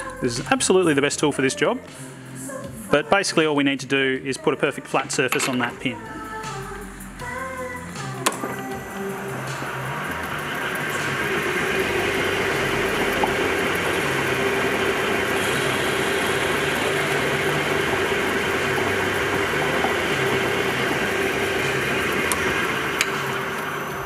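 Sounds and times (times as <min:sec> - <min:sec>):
metal lathe humming: 0:05.2 - 0:24.0
lathe tool bit cutting metal: 0:08.2 - 0:24.0.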